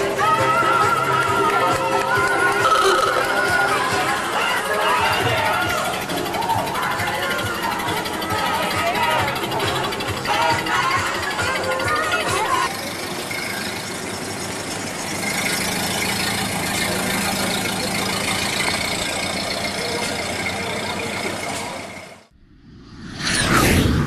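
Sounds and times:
car engine running: 0.0s - 22.6s
whoosh sound effect: 22.4s - 24.0s.

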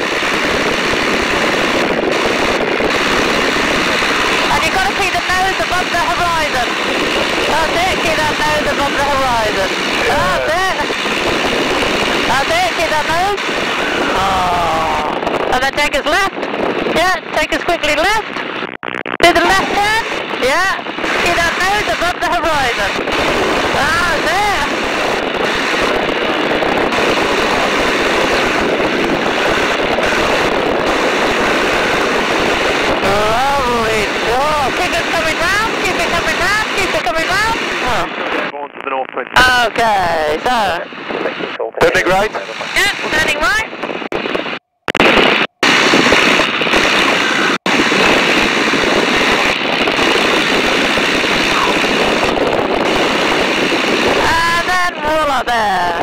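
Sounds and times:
aircraft engine and propeller: 0.0s - 14.2s, 19.2s - 38.3s
rush of slipstream: 0.0s - 15.5s, 19.3s - 38.5s, 42.0s - 44.4s, 45.1s - 55.4s
wind noise: 0.0s - 56.0s.

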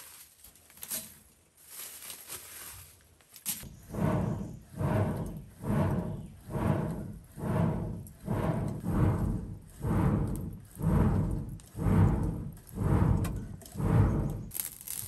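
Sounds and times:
hand-cranked blower whooshing: 3.6s - 15.0s.

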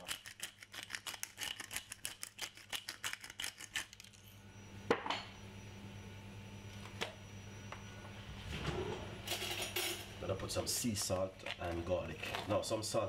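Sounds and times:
pepper mill grinding: 0.0s - 4.2s, 10.7s - 13.0s
low hum: 4.1s - 12.4s.

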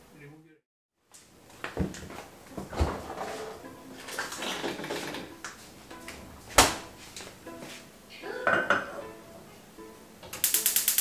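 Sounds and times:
kitchen clinks and rustles: 2.6s - 5.3s
metal pot clanking on burner grate: 8.4s - 9.0s.

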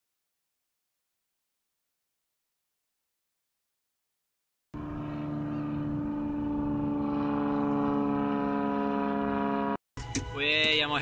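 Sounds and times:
steady engine drone: 4.8s - 11.0s.

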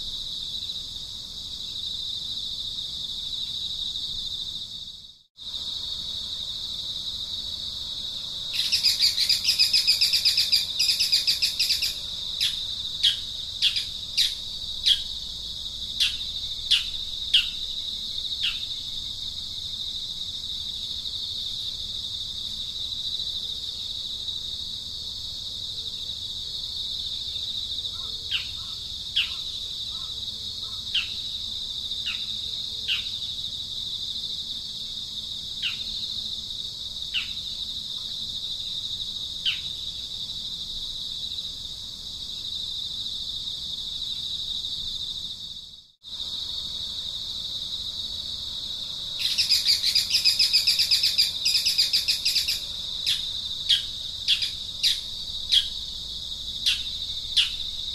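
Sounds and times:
insects droning: 0.0s - 57.9s
bird chirping: 8.6s - 15.1s, 16.0s - 17.7s, 49.2s - 55.8s.

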